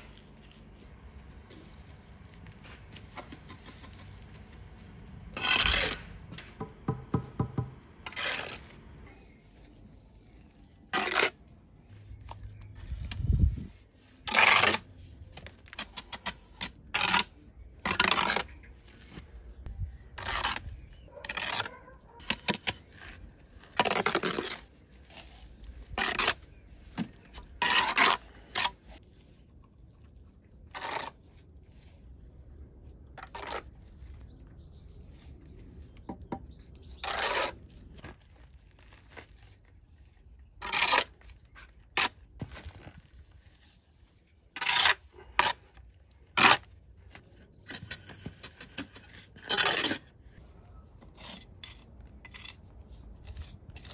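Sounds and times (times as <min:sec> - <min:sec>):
trowel scraping mortar: 0:05.3 - 0:06.2, 0:08.0 - 0:29.3, 0:30.4 - 0:32.2, 0:33.1 - 0:34.8, 0:36.0 - 0:38.1, 0:38.9 - 0:42.8, 0:43.7 - 0:46.9, 0:47.5 - 0:53.9.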